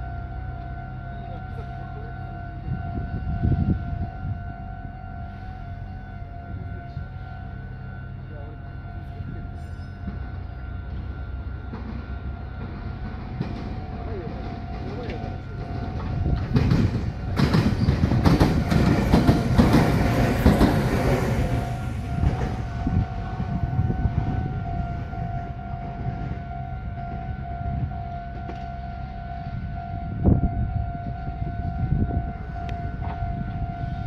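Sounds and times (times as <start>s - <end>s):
electric train passing: 0.0s - 34.0s
wheels clicking over rail joints: 11.7s - 22.6s.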